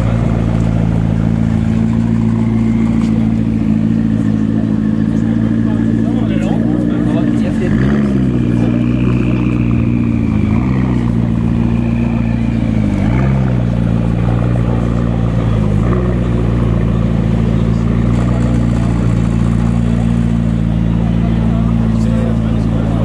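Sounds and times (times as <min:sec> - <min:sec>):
car engine at low revs: 0:00.0 - 0:23.0.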